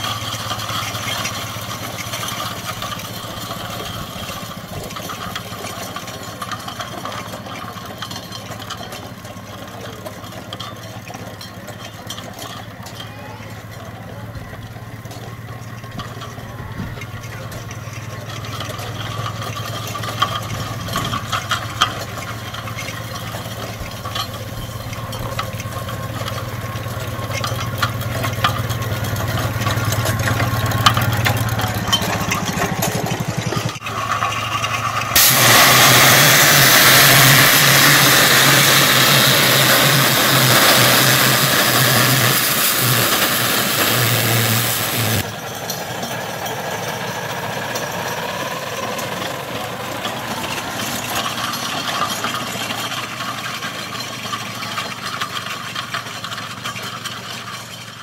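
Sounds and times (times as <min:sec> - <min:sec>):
clicks and knocks of engine works: 0:00.0 - 0:58.0
model steam engine humming: 0:00.0 - 0:58.0
rushing hiss of steam: 0:35.2 - 0:45.2.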